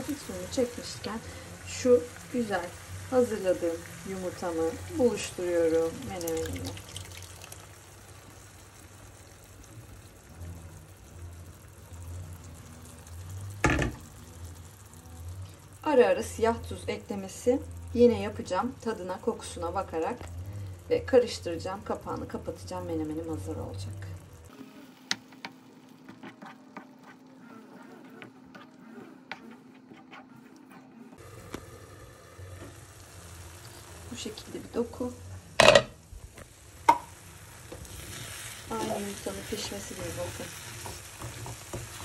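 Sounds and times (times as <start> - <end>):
batter pouring into a pan: 5.8 - 8.4
spoon scraping frying pan: 37.7 - 42.0.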